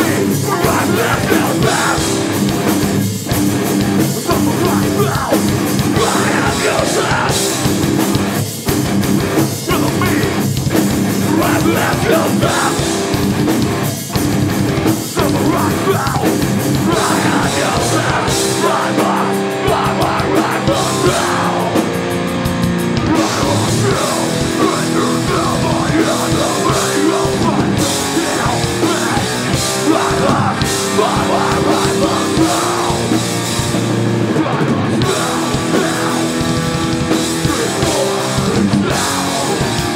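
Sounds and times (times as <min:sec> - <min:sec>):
shouted vocals: 0:00.0 - 0:02.4, 0:04.2 - 0:07.6, 0:11.2 - 0:13.0, 0:15.2 - 0:21.9, 0:23.1 - 0:33.2
bass guitar: 0:00.0 - 0:39.9
distorted electric guitars: 0:00.0 - 0:39.9
drum kit: 0:00.0 - 0:39.9.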